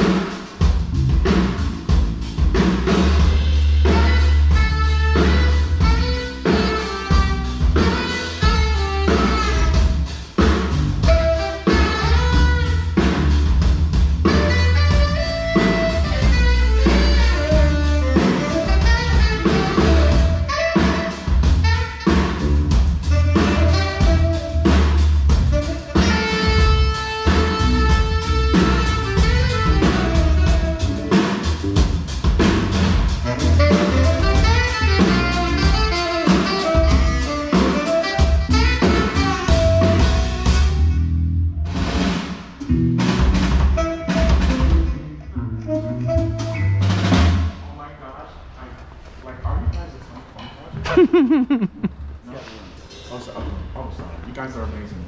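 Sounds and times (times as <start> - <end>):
heavy bass line: 0.0 - 47.6
drum kit: 0.0 - 47.7, 50.8 - 51.9
saxophone: 3.3 - 13.5, 14.1 - 32.2, 32.8 - 41.6, 43.5 - 47.4.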